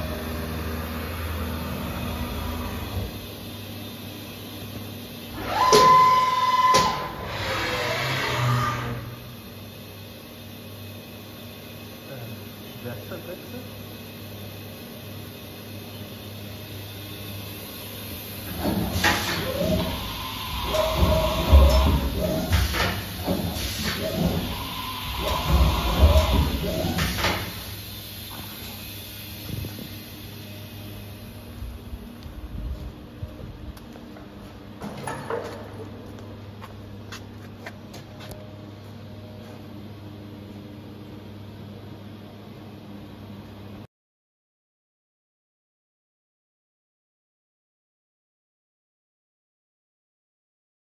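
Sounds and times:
steady low hum: 8.8s - 43.9s.

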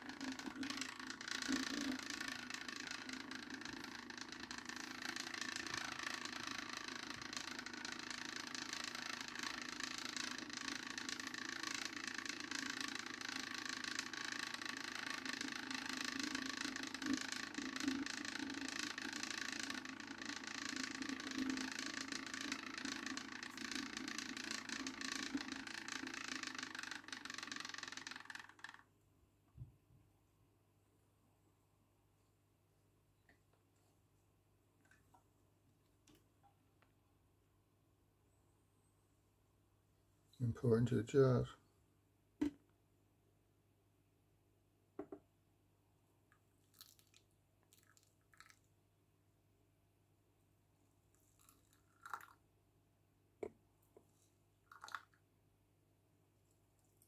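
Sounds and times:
stir plate whirring hum: 0.0s - 28.8s.

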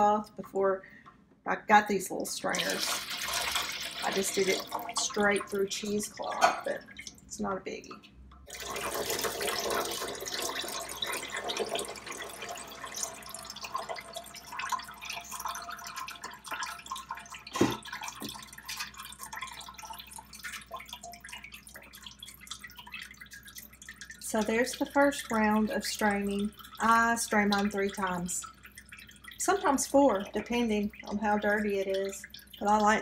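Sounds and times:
liquid pouring and dripping: 2.2s - 33.0s.

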